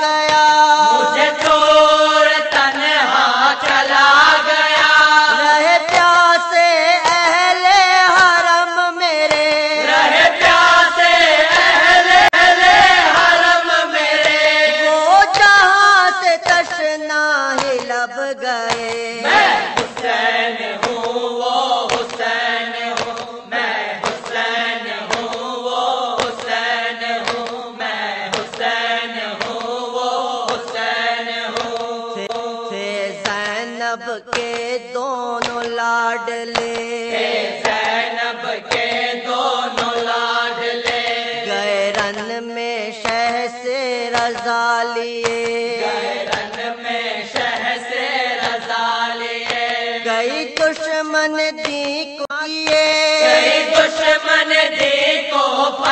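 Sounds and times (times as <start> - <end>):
person chanting mournful elegy: 0.0 - 2.2.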